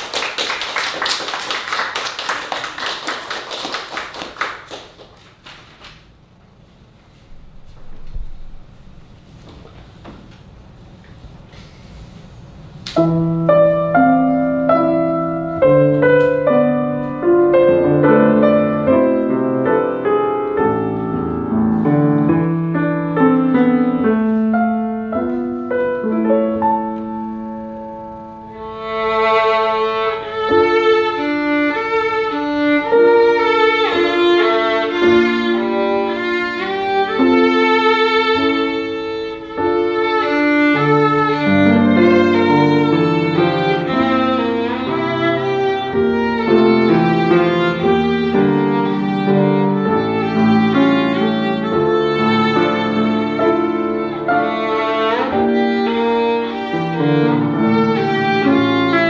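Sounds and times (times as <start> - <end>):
piano accompaniment: 0.0 - 5.4, 12.8 - 59.0
violin melody: 13.0 - 59.0.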